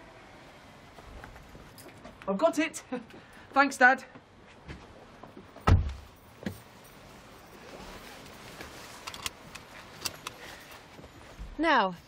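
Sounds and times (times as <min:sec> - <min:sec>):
door shutting with heavy thud: 0:05.6 - 0:06.1.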